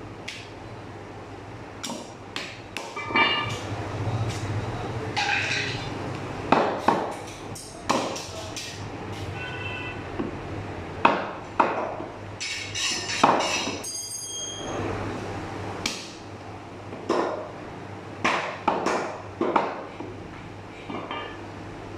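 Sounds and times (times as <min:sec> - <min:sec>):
ringing metallic clinks: 0:13.8 - 0:14.7
meat cleaver chopping on wood: 0:18.2 - 0:19.8.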